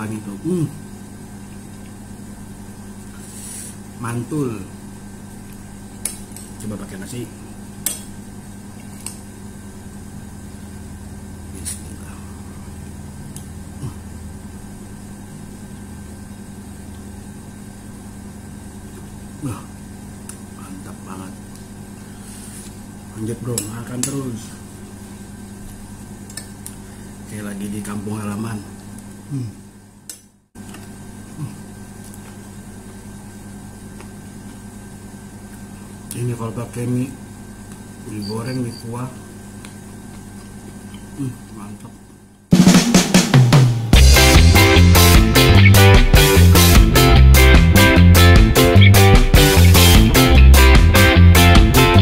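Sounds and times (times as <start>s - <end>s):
steady low hum: 0.0s - 52.0s
person humming mm: 13.7s - 14.2s, 29.3s - 29.7s, 31.3s - 31.7s, 41.1s - 41.7s.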